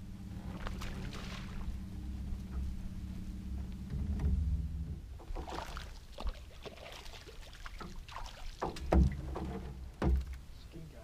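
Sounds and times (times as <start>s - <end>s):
steady low hum: 0.0s - 11.0s
fish splashing in water: 0.5s - 1.7s, 5.3s - 9.2s.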